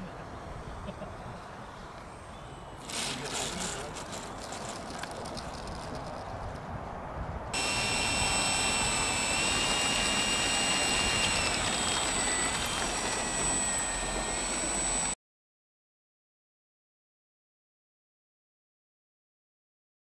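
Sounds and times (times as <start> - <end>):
model plane motor whining: 0.3 - 5.9, 7.6 - 15.2.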